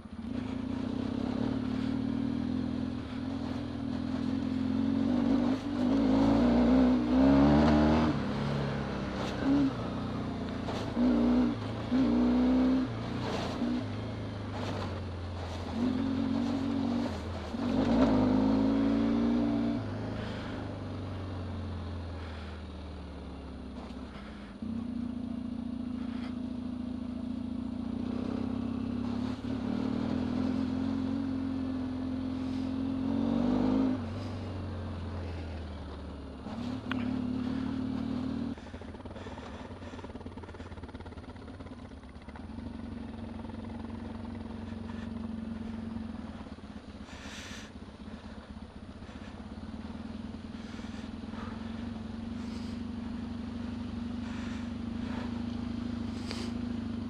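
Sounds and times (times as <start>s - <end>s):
motorcycle engine revving: 0.0s - 57.0s
motorcycle jolting over ruts: 35.2s - 57.0s.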